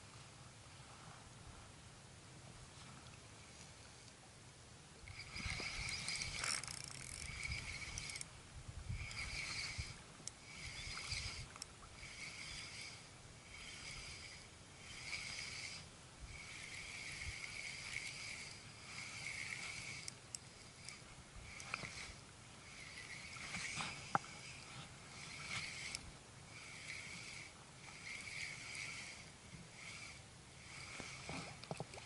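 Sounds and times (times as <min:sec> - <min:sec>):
fishing reel gears whirring: 0:05.0 - 0:32.0
sharp clicks: 0:05.4 - 0:08.3.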